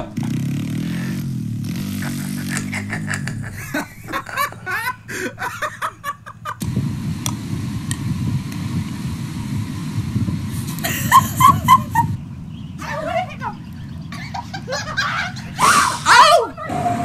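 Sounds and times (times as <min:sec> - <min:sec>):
wind buffeting microphone: 0:06.5 - 0:15.8
excited voices: 0:12.8 - 0:17.0
high-pitched voices: 0:15.0 - 0:17.0.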